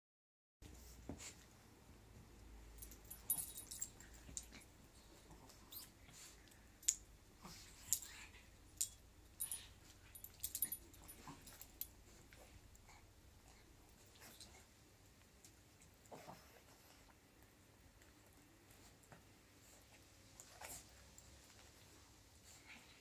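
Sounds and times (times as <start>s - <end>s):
dogs play-fighting: 2.8s - 6.6s, 9.4s - 14.8s, 15.5s - 23.0s.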